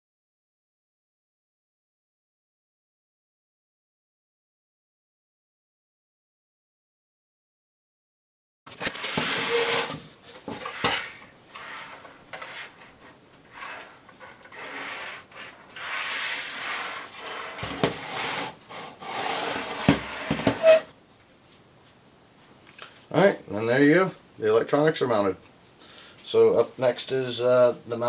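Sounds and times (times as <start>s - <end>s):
wood rubbing and scraping: 8.7s - 20.9s.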